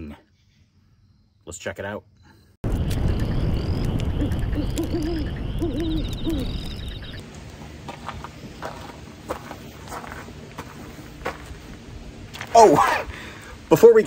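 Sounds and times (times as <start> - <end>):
faint high chirps: 2.1 - 7.2
heavy low rumble: 2.6 - 7.2
owl hooting: 3.4 - 7.2.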